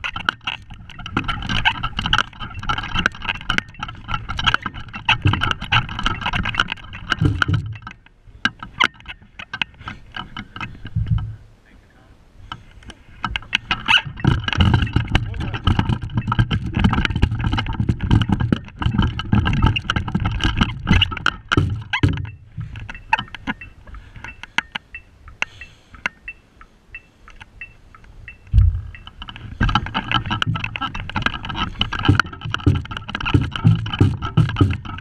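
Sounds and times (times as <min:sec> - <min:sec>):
bass drum hits: 0:28.6 - 0:28.9.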